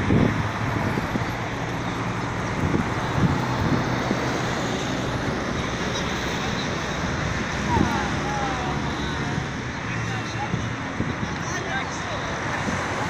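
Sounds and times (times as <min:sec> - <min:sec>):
wind on microphone: 0:00.0 - 0:05.5, 0:07.0 - 0:11.6
distant city traffic: 0:00.0 - 0:13.0.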